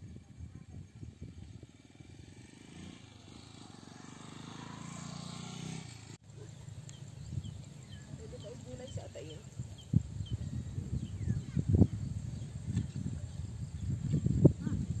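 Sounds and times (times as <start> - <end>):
small motorcycle engine passing: 0.0 - 15.0.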